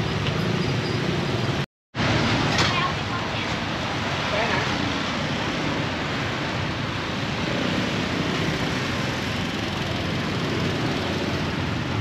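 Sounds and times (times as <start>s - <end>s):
street and market noise: 0.0s - 12.0s.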